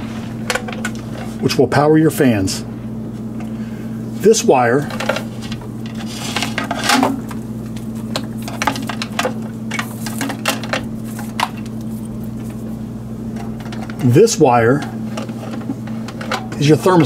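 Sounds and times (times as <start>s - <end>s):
steady low hum: 0.0s - 17.0s
wire clicks and rustles: 4.7s - 16.7s.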